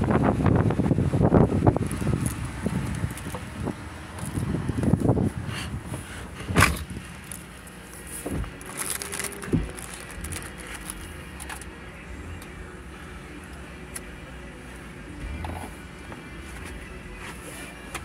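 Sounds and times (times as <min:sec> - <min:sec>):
low rumble inside a car: 0:00.0 - 0:18.0.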